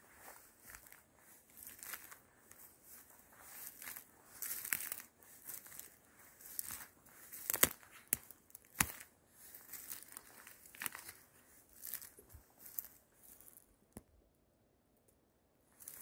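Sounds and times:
footsteps through dry leaves: 0:00.0 - 0:13.6, 0:15.8 - 0:16.0
twig snaps: 0:06.6 - 0:09.1.

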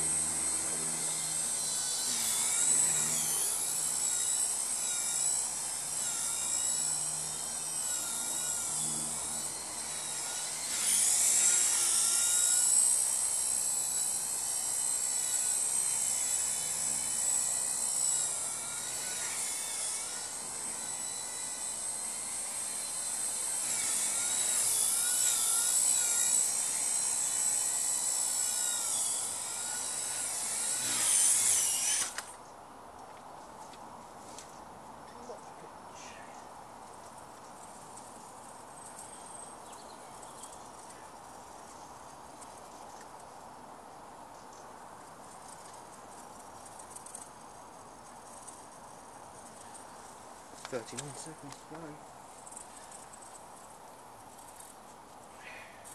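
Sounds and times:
rc helicopter motor whine: 0:00.0 - 0:32.5, 0:36.0 - 0:43.4, 0:44.0 - 0:55.9.

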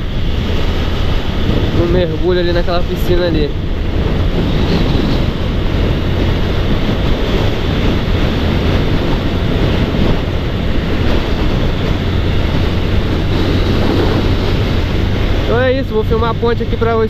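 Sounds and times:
motorcycle engine hum: 0:00.0 - 0:17.0
wind rushing over microphone: 0:00.0 - 0:17.0.

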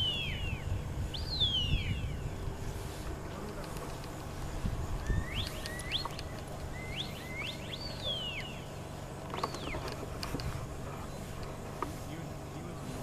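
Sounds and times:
short rising whistles: 0:00.0 - 0:02.7, 0:04.9 - 0:08.7
steady low rumble: 0:00.0 - 0:13.0.

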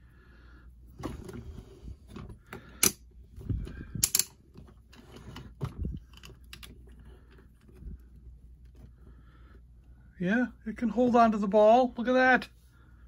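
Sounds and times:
plastic parts clicking: 0:03.6 - 0:07.8.

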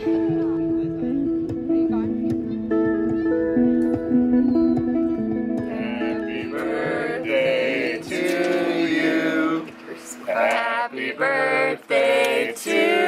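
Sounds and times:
men and women singing: 0:05.6 - 0:13.0.

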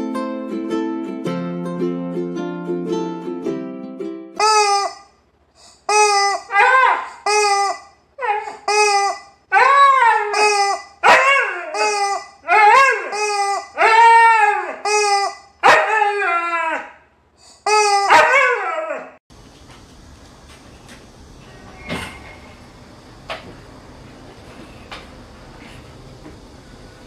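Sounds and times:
rubber chicken toy squawking: 0:04.4 - 0:15.5, 0:17.4 - 0:18.4
dog howling: 0:06.2 - 0:17.0, 0:17.7 - 0:19.2.

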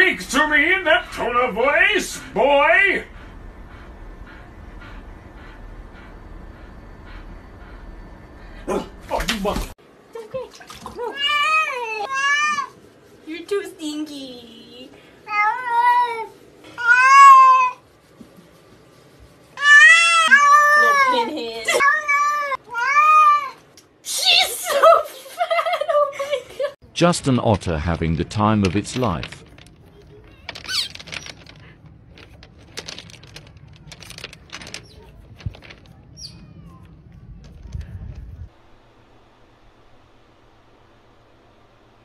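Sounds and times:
pebbles clicking and clattering: 0:28.6 - 0:36.1.

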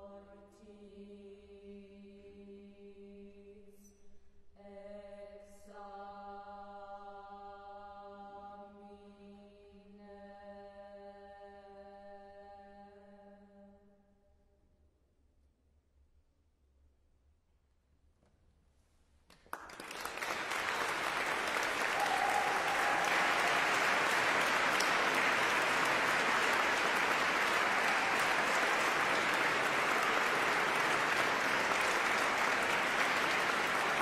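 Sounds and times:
audience applause: 0:19.4 - 0:34.0.

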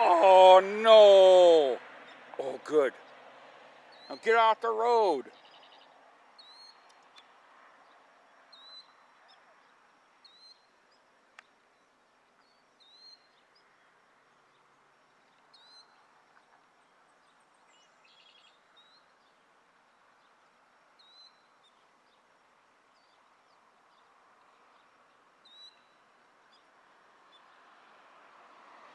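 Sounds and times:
bird high call notes: 0:00.0 - 0:01.8, 0:04.0 - 0:05.6.

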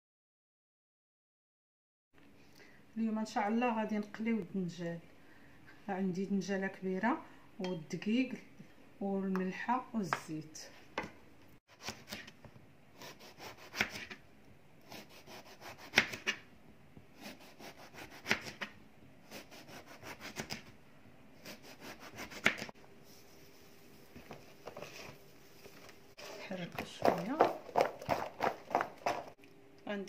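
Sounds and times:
knife slicing eggplant: 0:11.7 - 0:12.4, 0:13.0 - 0:14.2, 0:14.8 - 0:16.5, 0:17.1 - 0:20.8, 0:21.4 - 0:22.7.

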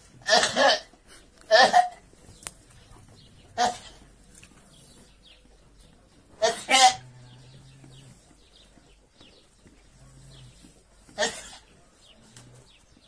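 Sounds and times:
lamb coughing: 0:00.2 - 0:02.1, 0:03.5 - 0:04.1, 0:06.4 - 0:07.0, 0:11.1 - 0:11.8.

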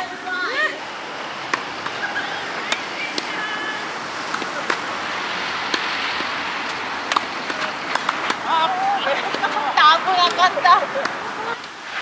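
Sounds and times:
tennis ball struck by racket: 0:01.5 - 0:02.0, 0:02.6 - 0:03.4, 0:04.2 - 0:09.6.

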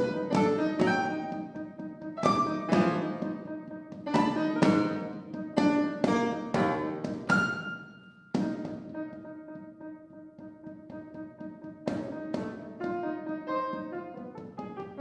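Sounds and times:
drum strokes: 0:00.0 - 0:07.8, 0:08.4 - 0:09.2
piano chords: 0:00.0 - 0:15.0.

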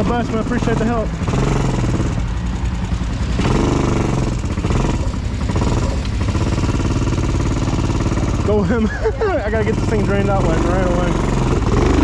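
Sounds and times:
atv engine running at low revs: 0:00.0 - 0:12.0.

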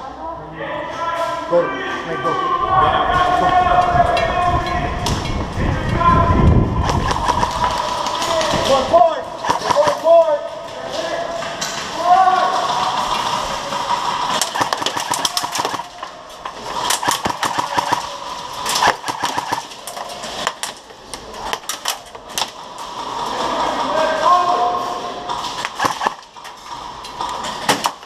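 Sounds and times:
people shouting: 0:01.0 - 0:05.0, 0:05.7 - 0:10.5, 0:11.9 - 0:20.4
airsoft guns firing: 0:06.8 - 0:10.3, 0:12.7 - 0:22.7, 0:25.5 - 0:26.5, 0:27.6 - 0:28.0.

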